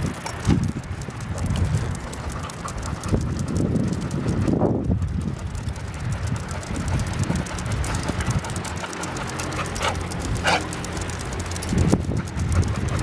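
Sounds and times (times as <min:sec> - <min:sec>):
dog claws tapping on brick: 0:04.8 - 0:13.0.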